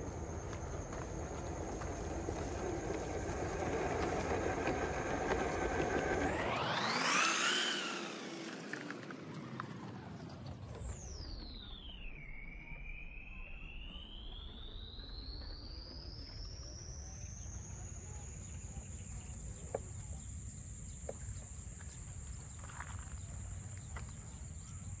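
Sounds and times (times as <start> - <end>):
thin high-pitched tone: 9.7 - 18.8.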